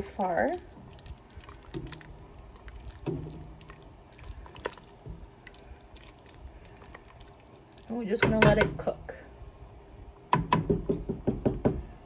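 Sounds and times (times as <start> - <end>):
soup sloshing in a pot: 0.0 - 8.0.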